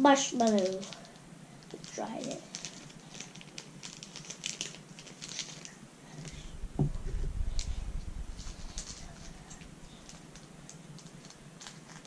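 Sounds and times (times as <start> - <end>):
plastic bag crinkling: 0.4 - 12.0
thump with low rumble: 6.3 - 9.9.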